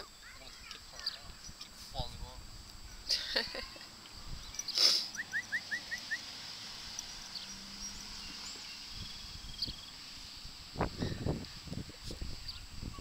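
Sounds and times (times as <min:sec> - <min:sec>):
small bird chirping: 0:00.0 - 0:02.1, 0:03.8 - 0:10.3, 0:12.3 - 0:13.0
faint high hiss: 0:00.0 - 0:13.0.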